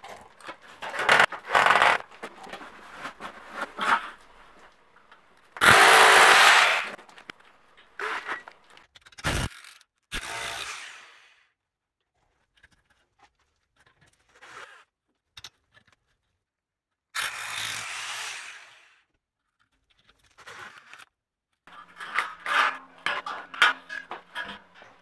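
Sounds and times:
rotary hammer drilling: 5.6s - 7.0s, 9.3s - 11.4s.

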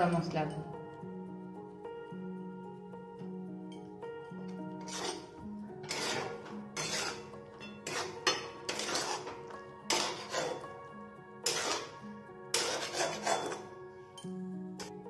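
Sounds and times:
metal spatula scraping metal pan: 4.7s - 10.7s, 11.4s - 13.7s.

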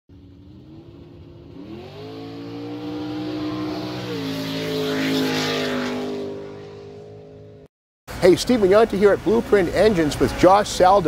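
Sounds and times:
engine revving: 0.1s - 7.7s.

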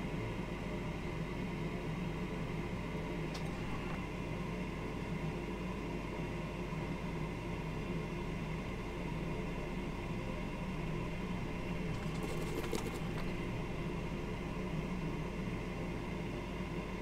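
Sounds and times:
machine hum and hiss: 0.0s - 17.0s.

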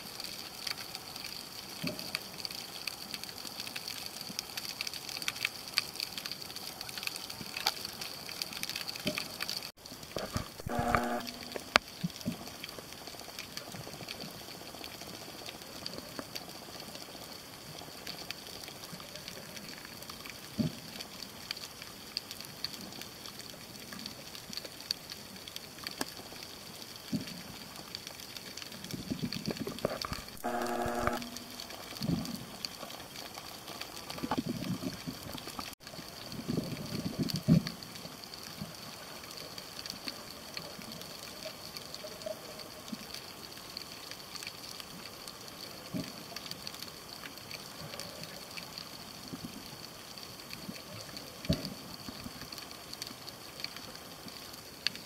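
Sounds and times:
faint ticks: 0.1s - 55.0s
short buzzing tone: 10.6s - 11.8s, 30.4s - 31.8s.

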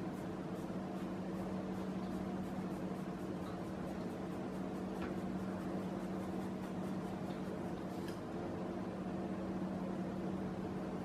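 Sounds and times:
pencil scratching on paper: 0.0s - 7.8s
room tone hum: 0.0s - 11.0s.

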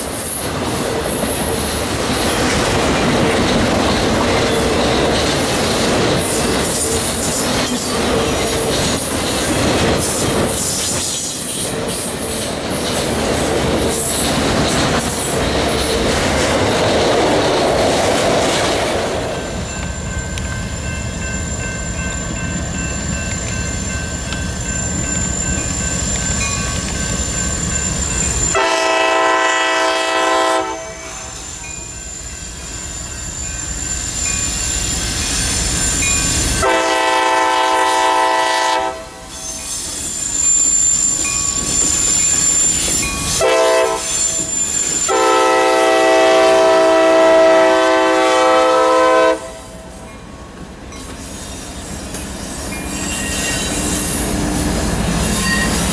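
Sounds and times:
train rumble: 0.0s - 55.9s
high wheel squeal: 19.8s - 28.6s, 31.0s - 36.7s, 39.2s - 46.0s, 51.0s - 55.9s
locomotive air horn blasts: 28.5s - 31.4s, 36.6s - 39.4s, 43.4s - 44.4s, 45.1s - 49.8s.

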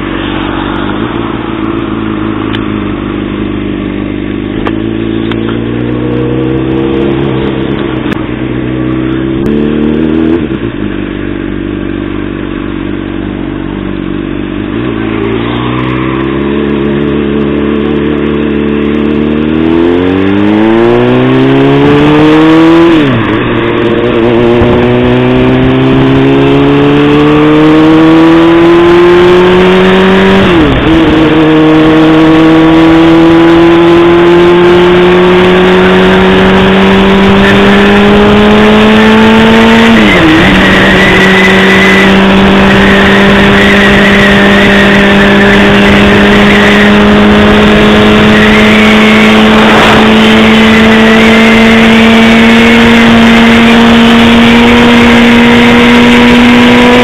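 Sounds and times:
motorcycle engine accelerating: 0.0s - 57.0s
wind rush: 21.2s - 27.3s, 36.1s - 53.9s.

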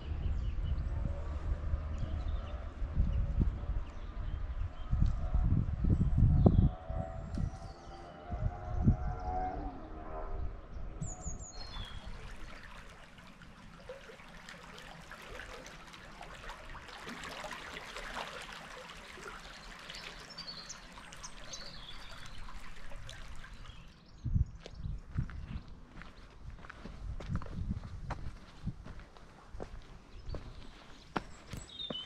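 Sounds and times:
rushing river water: 11.7s - 23.9s
small birds chirping: 19.4s - 26.9s, 28.2s - 32.0s.

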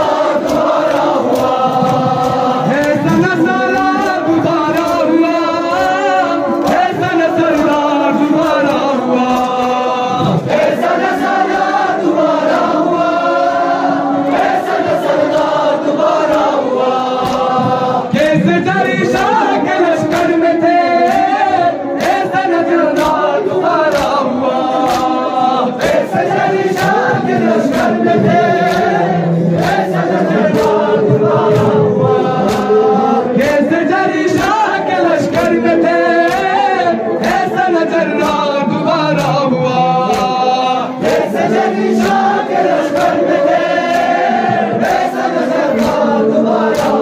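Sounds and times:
hands slapping chests: 0.0s - 11.8s, 14.3s - 18.4s, 19.0s - 31.8s, 32.4s - 32.8s, 36.2s - 36.6s, 40.0s - 40.4s, 41.0s - 47.0s
men chanting in unison: 0.0s - 47.0s.

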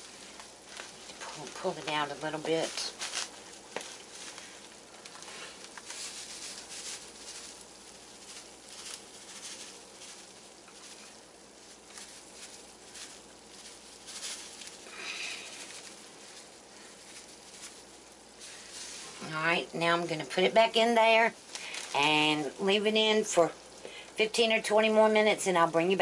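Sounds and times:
breadcrumbs pattering onto casserole: 0.0s - 24.1s
plastic bag rustling: 0.0s - 26.0s.

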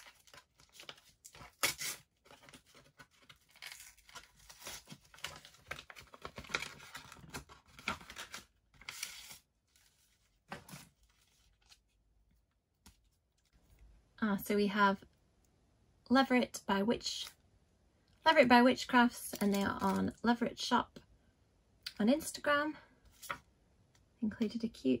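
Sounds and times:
paper envelope tearing: 0.0s - 10.0s
paper rustling and crinkling: 0.0s - 13.8s.

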